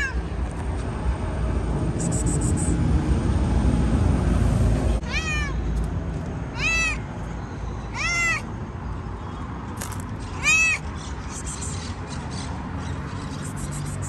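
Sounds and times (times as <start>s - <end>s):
cat meowing: 0.0s - 0.2s, 5.0s - 5.7s, 6.6s - 7.0s, 7.9s - 8.5s, 10.4s - 10.8s.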